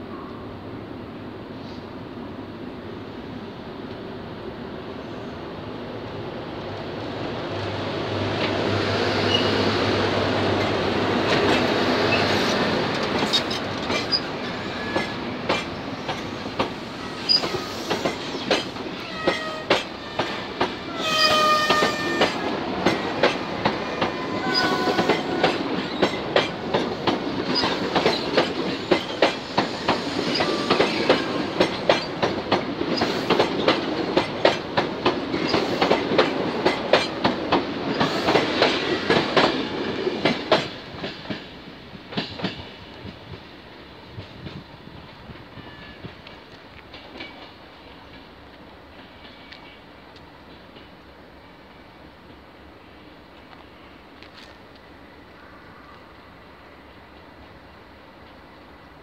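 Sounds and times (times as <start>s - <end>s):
train wheels clickety-clack: 8.3s - 51.0s
wheel squeals: 17.0s - 20.2s.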